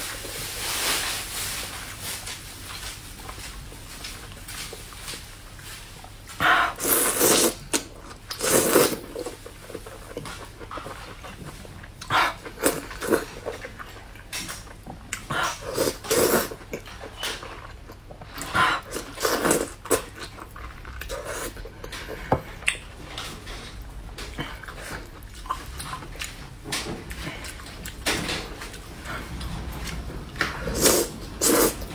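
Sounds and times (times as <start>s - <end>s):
person eating with wet slurps: 6.4s - 11.4s, 15.1s - 22.2s, 30.4s - 31.9s.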